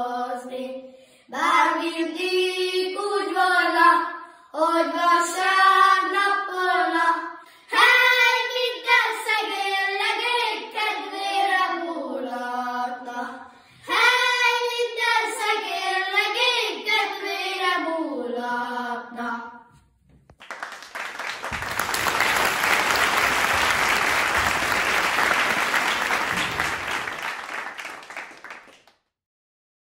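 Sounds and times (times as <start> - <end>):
children singing folk song: 0.0 - 19.7
applause: 20.3 - 29.1.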